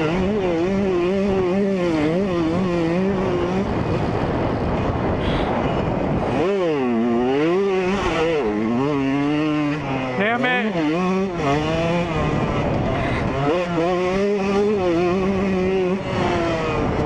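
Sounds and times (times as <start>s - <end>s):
two-stroke engine revving: 0.0s - 17.0s
rushing noise: 3.7s - 6.9s.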